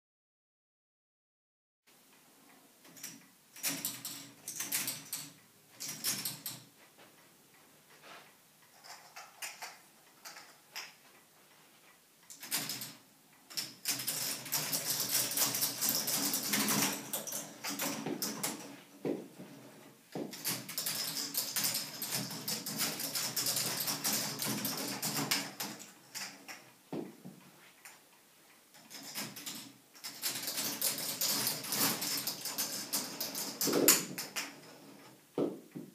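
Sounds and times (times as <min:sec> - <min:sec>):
balls rattling through plastic: 0:28.8 - 0:35.0.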